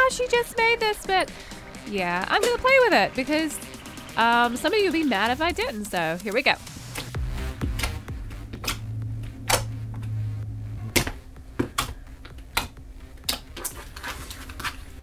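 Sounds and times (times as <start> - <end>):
air pockets popping with clicks: 6.8 - 10.2, 10.9 - 13.8.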